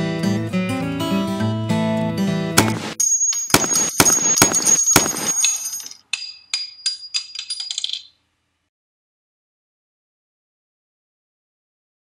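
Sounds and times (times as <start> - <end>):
gunshot sound effects: 2.6 - 3.0
shell casing bouncing on hard surface: 2.6 - 8.2.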